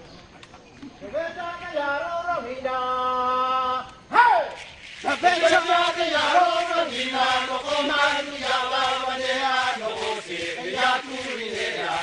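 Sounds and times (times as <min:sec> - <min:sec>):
men chanting in unison: 0:05.1 - 0:12.0.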